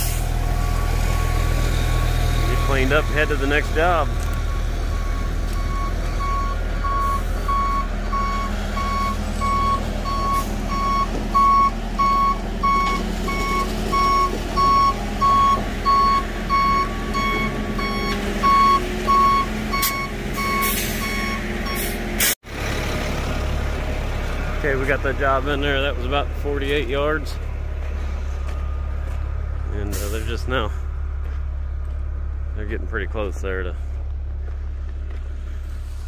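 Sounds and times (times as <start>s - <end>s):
diesel engines rumbling: 0.0s - 36.0s
reversing alarm beeps: 4.4s - 21.9s.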